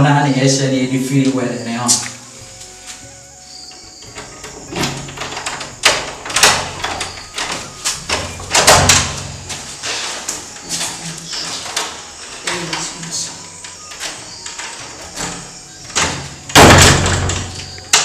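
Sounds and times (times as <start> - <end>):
door opening with lever handle: 3.6 - 18.0
sharp knocks and rattles on door: 3.7 - 18.0.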